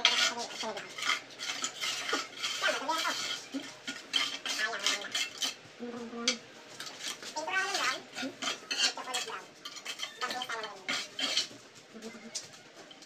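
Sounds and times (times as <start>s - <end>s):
trowel scraping cement on tile: 0.0s - 5.6s, 6.8s - 11.6s.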